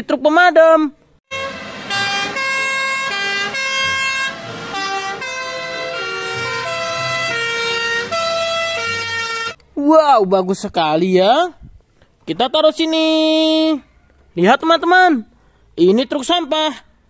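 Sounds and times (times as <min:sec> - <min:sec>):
two-tone fire engine sirens: 0:01.3 - 0:09.6.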